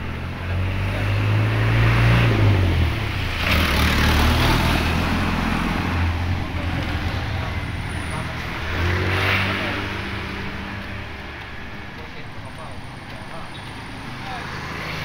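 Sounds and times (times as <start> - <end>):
truck driving past: 0.0 - 11.9.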